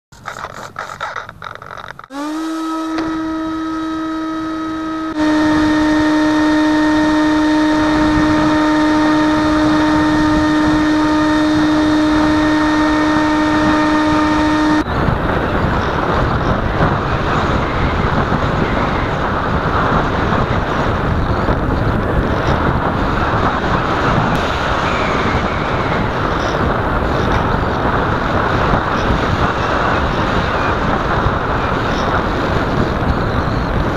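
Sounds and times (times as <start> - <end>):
electric motor propeller whine: 0.2 - 33.9
wind rushing over camera: 13.2 - 33.9.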